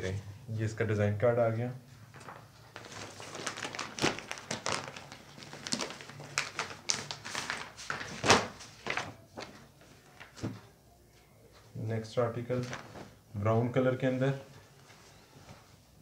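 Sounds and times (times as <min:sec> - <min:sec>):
fabric handling taps and rustles: 0:12.5 - 0:13.2.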